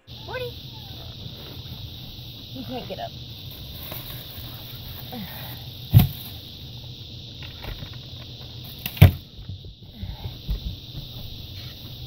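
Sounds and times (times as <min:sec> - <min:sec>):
faint steady hiss: 0:00.0 - 0:12.0
sharp thumps: 0:05.7 - 0:12.0.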